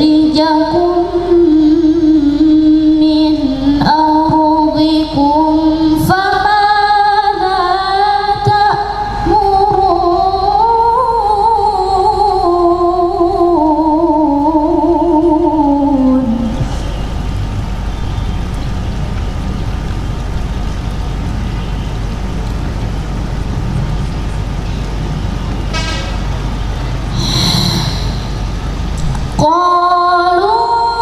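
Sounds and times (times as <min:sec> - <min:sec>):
woman reciting melodically: 0:00.0 - 0:16.9, 0:29.4 - 0:31.0.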